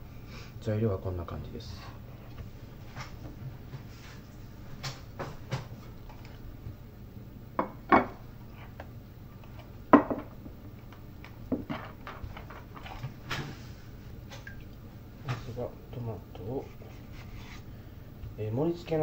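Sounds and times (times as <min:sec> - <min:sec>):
dishes knocking and clattering: 0:07.6 - 0:08.2, 0:09.9 - 0:10.6, 0:11.5 - 0:13.6.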